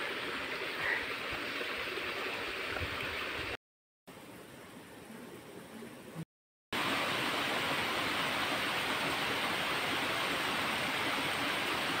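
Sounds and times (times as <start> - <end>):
small waterfall and stream running: 0.0 - 4.6, 6.8 - 12.0.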